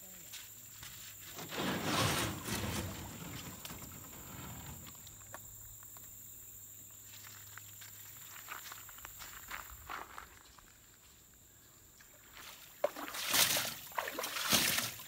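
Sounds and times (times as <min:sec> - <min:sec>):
canoe hull scraping on sand: 0:01.1 - 0:05.3.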